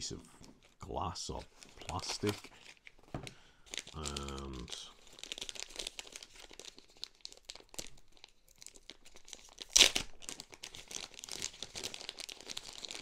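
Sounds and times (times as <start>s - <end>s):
plastic bag crinkling: 0.4s - 13.0s.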